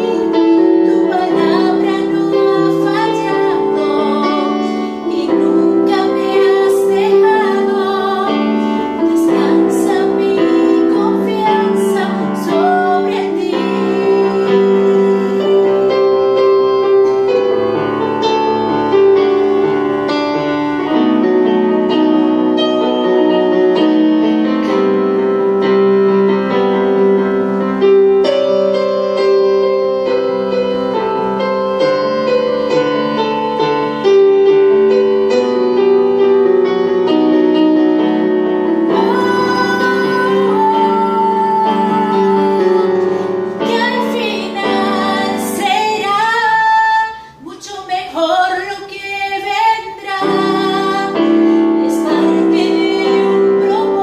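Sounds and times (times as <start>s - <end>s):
woman singing a ballad: 0.0s - 17.4s, 38.6s - 54.0s
electronic keyboard: 0.0s - 54.0s.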